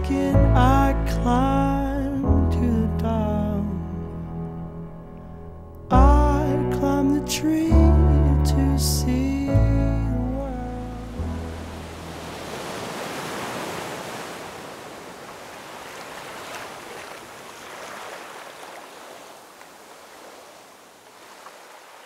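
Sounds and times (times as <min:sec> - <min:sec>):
ocean surf washing onto beach: 0:10.9 - 0:22.0.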